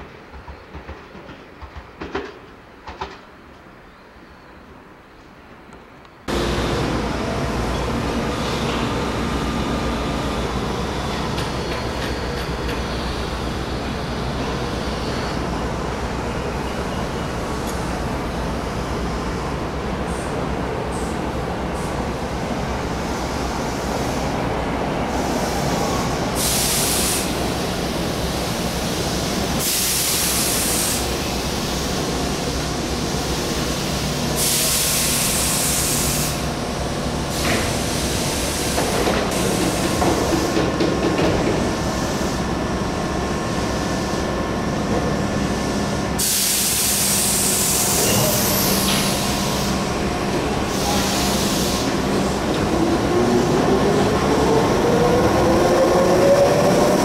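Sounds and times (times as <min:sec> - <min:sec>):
electric train hum: 0:04.8 - 0:57.0
bursts of hissing air: 0:25.1 - 0:31.8, 0:46.2 - 0:49.8, 0:50.6 - 0:52.0.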